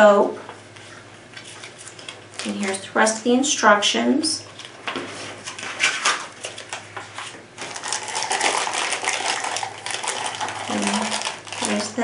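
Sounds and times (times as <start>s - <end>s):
plastic wrapping crinkling: 4.5s - 12.0s.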